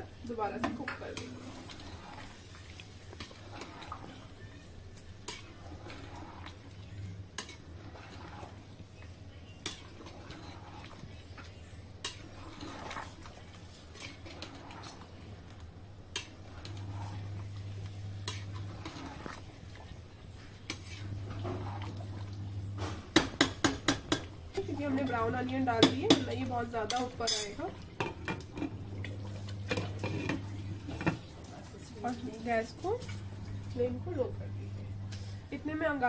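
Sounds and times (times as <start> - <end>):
low steady hum: 0.0 - 36.0
spoon stirring thick curry: 0.5 - 22.4
spoon clinking against pot: 23.2 - 28.4.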